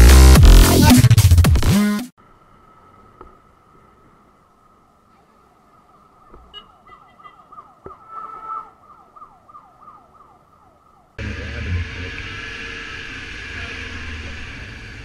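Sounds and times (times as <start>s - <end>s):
distant siren yelping: 6.4s - 11.2s.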